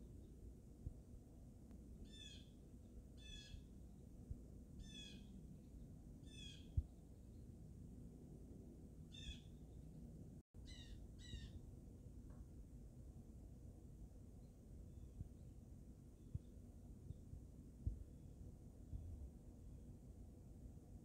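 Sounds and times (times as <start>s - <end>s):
low background rumble: 0.0s - 21.0s
blue jay calling: 2.0s - 2.6s, 3.2s - 3.7s, 4.8s - 5.3s, 6.2s - 6.8s, 9.1s - 9.6s, 10.6s - 11.6s.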